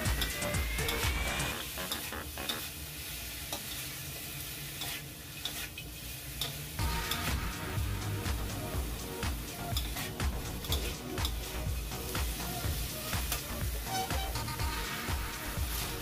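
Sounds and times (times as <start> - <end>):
food sizzling in a wok: 0.0 - 16.0
spatula scraping pan: 13.3 - 15.0.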